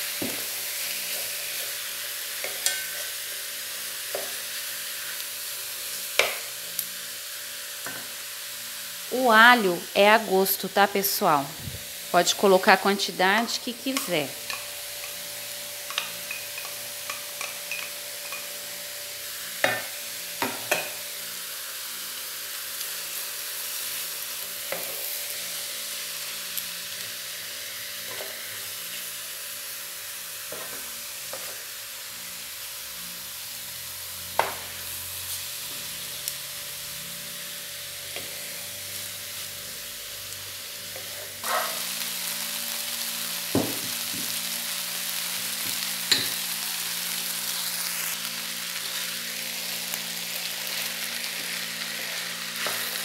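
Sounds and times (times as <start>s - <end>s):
meat sizzling in a frying pan: 0.0s - 53.0s
wooden spoon knocking on pan: 43.6s - 44.3s.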